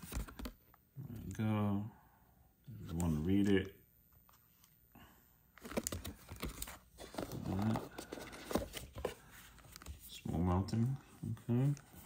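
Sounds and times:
paper and cardboard rustling: 5.6s - 12.0s.

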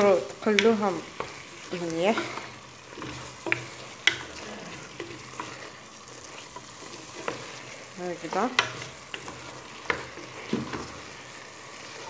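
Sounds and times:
food sizzling in a pot: 0.0s - 12.0s
wooden spoon stirring: 0.0s - 12.0s
wooden spoon knocking on pot: 0.4s - 5.6s, 8.2s - 11.1s.

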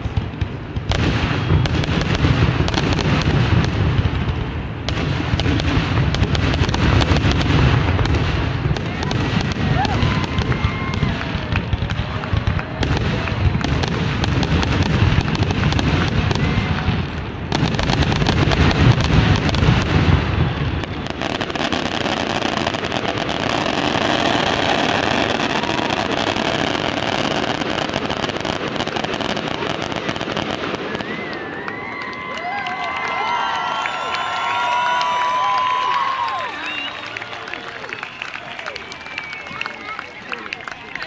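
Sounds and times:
fireworks booming: 0.0s - 31.5s
fireworks crackling hiss: 0.0s - 31.6s.

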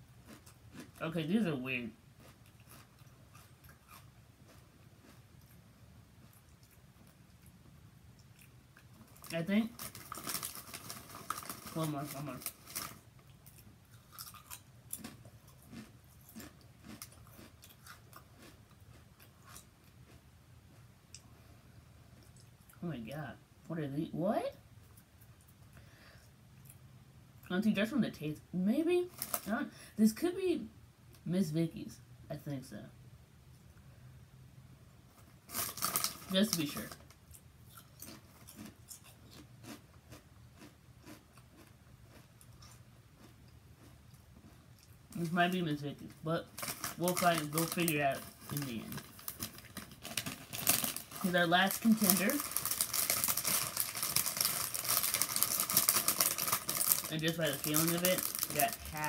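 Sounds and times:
person crunching potato chips: 0.1s - 1.4s, 2.2s - 5.6s, 8.2s - 20.2s, 29.1s - 29.6s, 35.2s - 45.4s, 46.4s - 59.0s.

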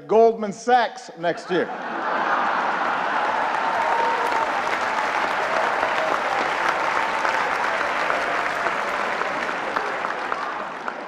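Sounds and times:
large audience applauding: 2.2s - 11.0s.

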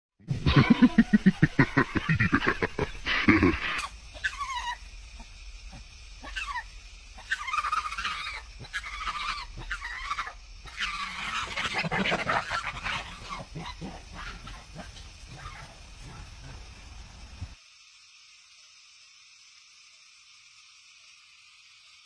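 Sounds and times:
monkeys squealing calls: 0.4s - 4.8s, 6.2s - 14.7s.

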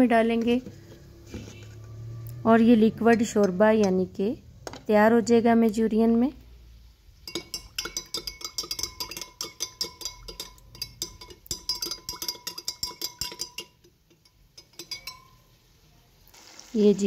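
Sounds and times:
spoon clinking in a glass: 7.2s - 15.6s.

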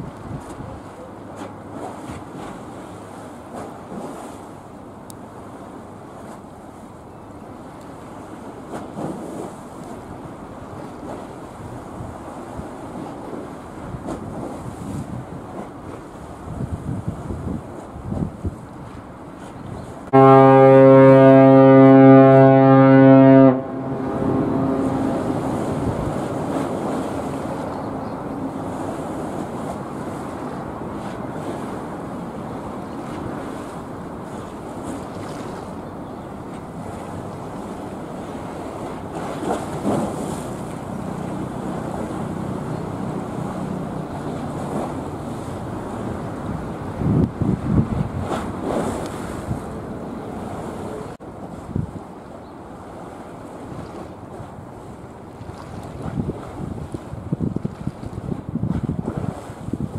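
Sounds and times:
wind buffeting microphone: 0.0s - 0.9s, 8.8s - 20.1s, 23.1s - 52.2s, 52.8s - 59.9s
open water washing: 0.0s - 59.9s
ship's whistle low blast: 20.1s - 25.6s.

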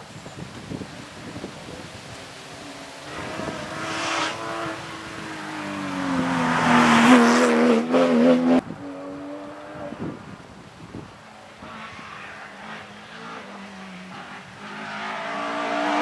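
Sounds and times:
rally car passing at speed: 2.5s - 10.4s, 11.3s - 16.0s.

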